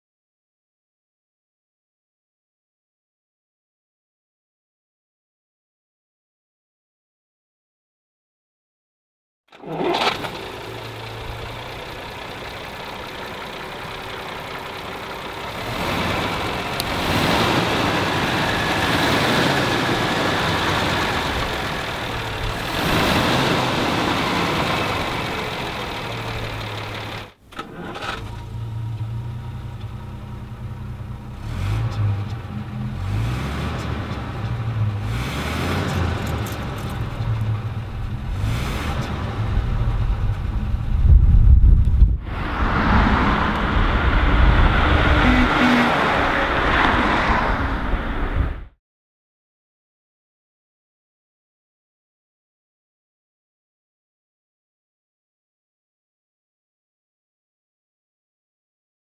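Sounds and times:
car engine revving and idling: 0:09.5 - 0:48.0.

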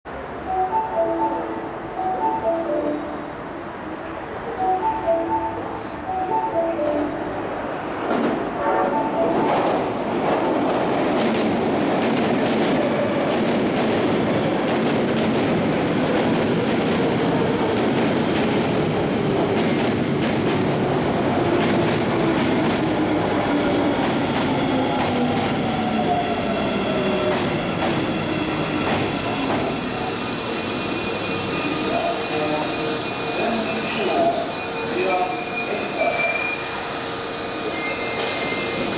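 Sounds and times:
train braking: 0:15.1 - 0:38.9.

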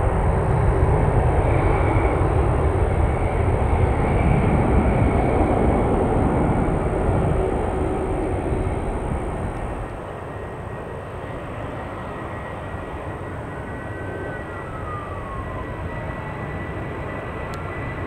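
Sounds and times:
jet engine rumble: 0:00.0 - 0:18.0.

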